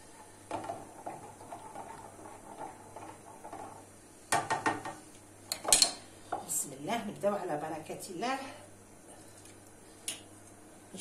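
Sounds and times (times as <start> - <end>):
wooden spoon scraping pan: 0.6 - 3.9
spoon knocking against pan: 4.3 - 5.9.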